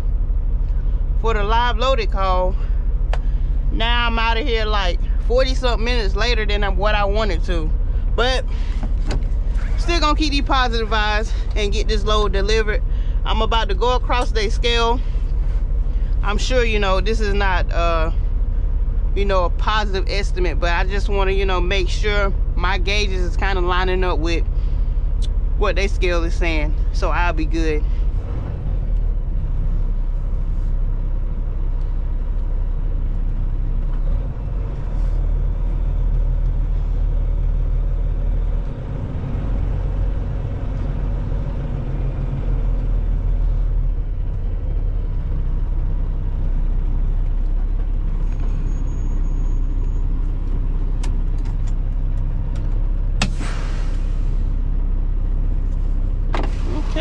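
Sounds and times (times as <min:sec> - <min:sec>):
diesel truck engine rumbling: 0:00.0 - 0:57.0
short air hiss: 0:53.2 - 0:54.5.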